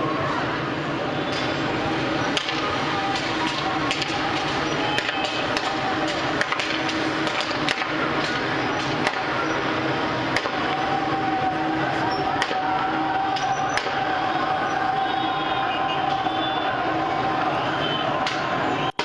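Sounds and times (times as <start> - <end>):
faint voices: 0.0 - 19.0
motorcycle engines humming: 0.0 - 19.0.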